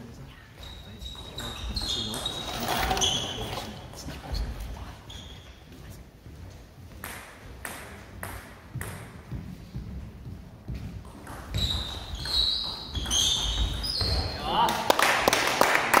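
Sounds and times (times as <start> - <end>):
shoes squeaking on wooden floor: 0.4 - 14.7.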